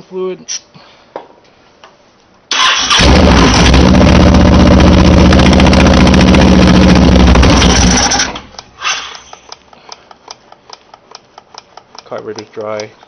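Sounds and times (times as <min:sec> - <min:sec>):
engine starter cranking: 0:02.5 - 0:04.3, 0:07.2 - 0:09.3
motorcycle engine running loudly: 0:03.0 - 0:08.3.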